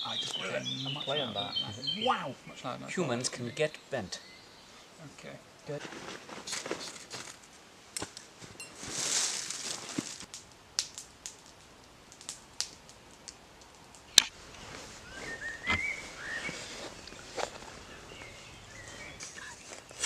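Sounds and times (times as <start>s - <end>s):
campfire crackling: 0.0s - 20.0s
fire pops and snaps: 5.8s - 8.4s, 9.2s - 14.7s.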